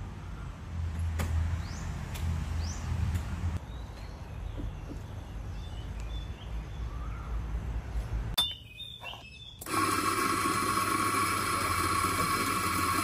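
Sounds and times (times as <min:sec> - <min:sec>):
coffee grinder motor whining: 0:09.6 - 0:13.0.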